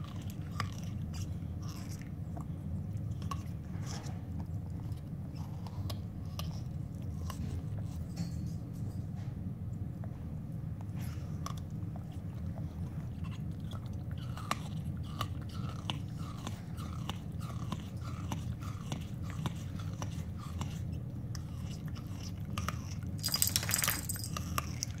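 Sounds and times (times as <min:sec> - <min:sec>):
dog chewing a bone toy: 0:00.0 - 0:08.6, 0:10.8 - 0:25.0
bright jingle: 0:23.2 - 0:24.4.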